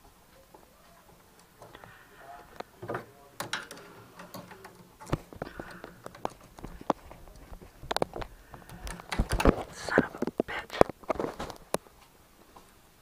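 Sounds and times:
clicks of handling tools: 2.6 - 10.4.

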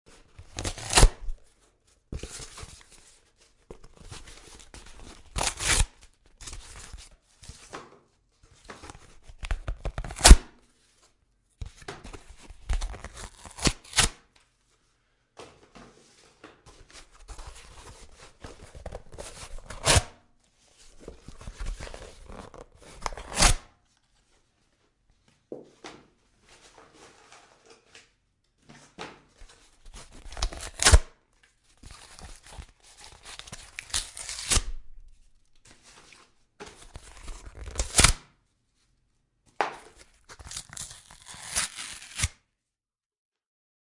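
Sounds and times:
cardboard ripping: 0.6 - 1.2, 13.0 - 14.1, 30.1 - 31.0, 33.3 - 34.8, 40.3 - 42.4.

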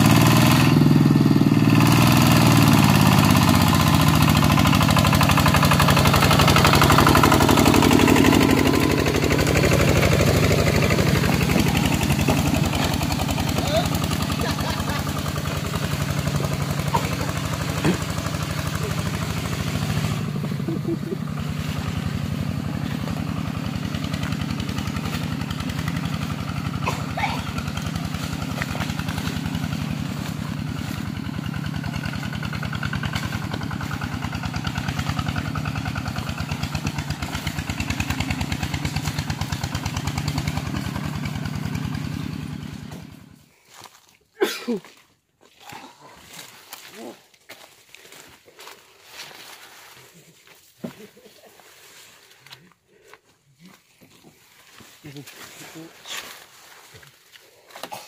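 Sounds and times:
tractor engine chugging: 0.0 - 44.6.

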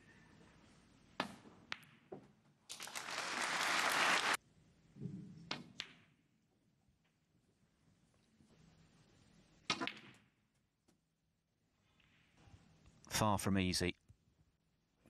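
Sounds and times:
audience applauding: 2.7 - 4.4.

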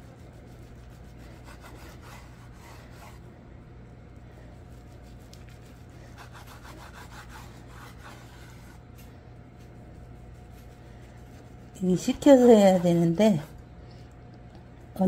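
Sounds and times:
knife sawing on cutting board: 0.7 - 3.2, 6.1 - 8.8.

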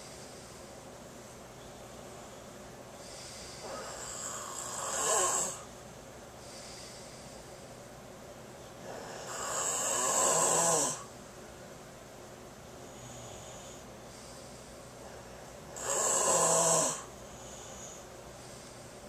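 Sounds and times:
person snoring: 3.0 - 5.7, 8.8 - 11.1, 15.7 - 18.0.

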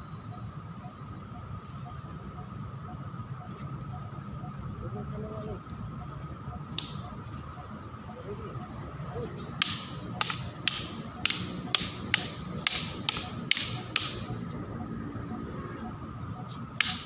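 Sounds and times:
sticks clacking together: 9.6 - 14.2.

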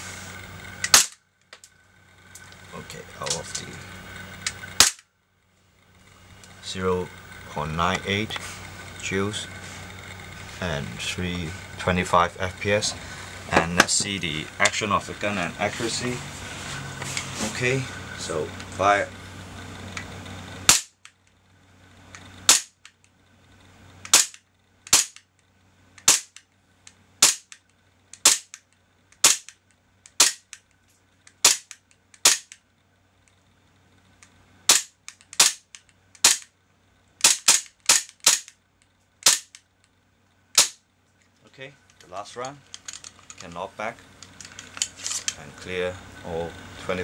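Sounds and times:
airsoft pistol shots: 0.8 - 1.2, 4.8 - 5.0, 20.7 - 21.0, 22.5 - 22.8, 24.1 - 25.2, 26.0 - 26.4, 27.2 - 27.6, 28.2 - 28.6, 29.2 - 29.5, 30.2 - 30.5, 31.4 - 32.6, 34.7 - 36.5, 37.2 - 38.5, 39.2 - 39.6, 40.6 - 40.8.

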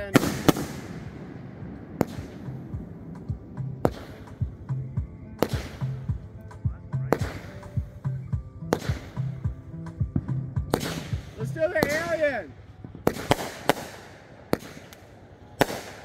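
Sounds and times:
fireworks bangs: 0.0 - 16.0
music with steady beat: 1.7 - 14.0.

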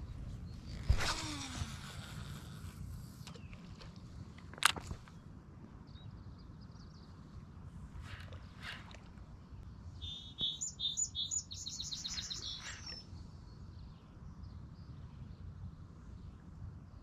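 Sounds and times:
low steady rumble: 0.0 - 17.0
faint bird notes: 4.8 - 16.4
songbird singing trill: 5.8 - 7.5, 9.5 - 15.7.

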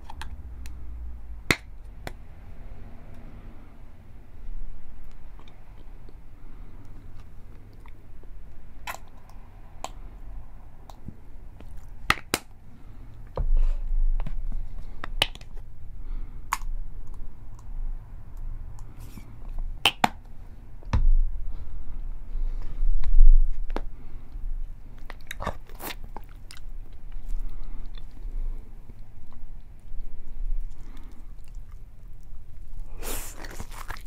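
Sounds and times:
squeeze bottles squeezed: 32.9 - 34.0.

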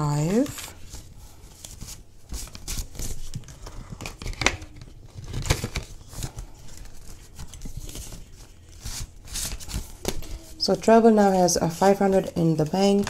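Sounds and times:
paper banknotes rustling: 0.2 - 13.0
plastic envelope crinkling: 0.3 - 10.6.

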